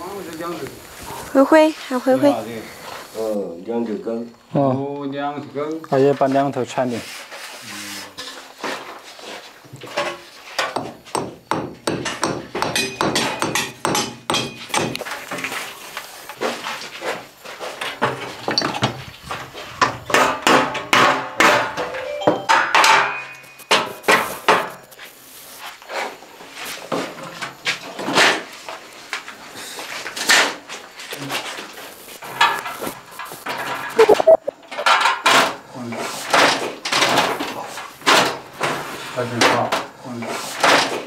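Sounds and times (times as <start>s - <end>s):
hammer knocking on masonry: 10.7s - 15.0s.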